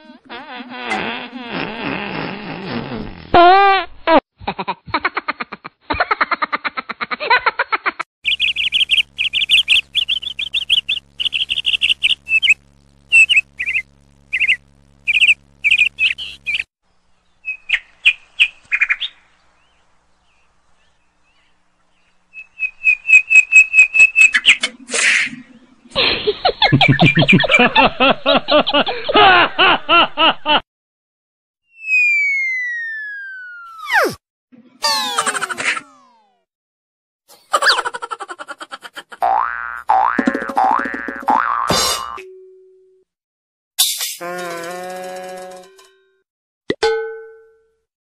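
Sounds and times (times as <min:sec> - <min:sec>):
high bird chirps and whistles: 0:08.2 - 0:16.7
warbling swoop: 0:31.9 - 0:34.2.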